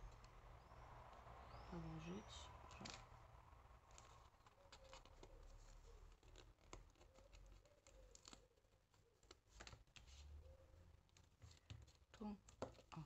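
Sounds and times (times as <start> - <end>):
paper envelope rustling: 3.9 - 12.8.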